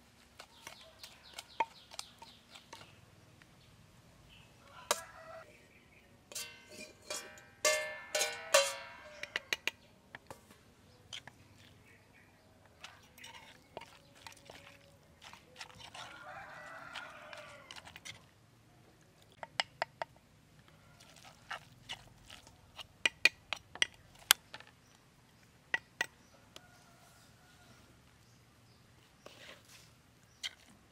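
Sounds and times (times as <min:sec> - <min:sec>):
rooster crowing: 0:04.6 - 0:05.5, 0:16.0 - 0:17.9.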